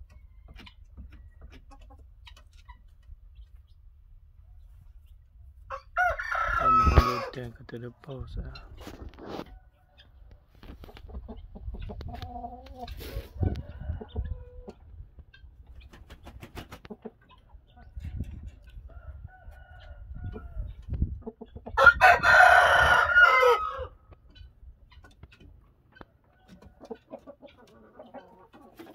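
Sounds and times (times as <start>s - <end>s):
rooster crowing: 5.7s - 7.3s, 21.8s - 24.0s.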